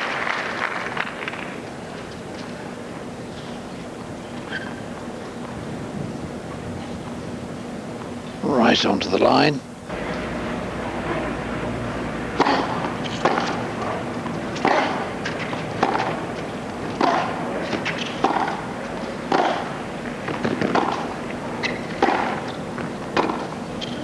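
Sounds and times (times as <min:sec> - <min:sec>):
tennis ball struck by rackets: 0:12.4 - 0:18.7, 0:19.3 - 0:23.5
ball bouncing on hard court: 0:17.0 - 0:18.6.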